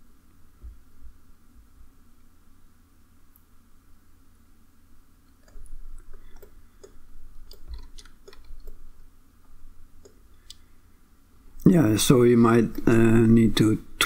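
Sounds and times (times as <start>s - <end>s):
mouse clicking: 5.3s - 8.8s, 10.0s - 10.6s
scroll wheel ticking: 5.3s - 9.0s, 10.0s - 10.6s.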